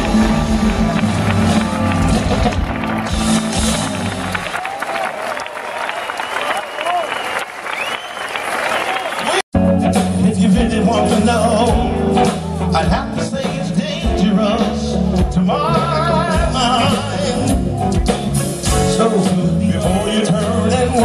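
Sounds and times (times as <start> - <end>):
live band playing: 0.0 - 4.8, 9.6 - 21.0
man singing: 9.9 - 21.0.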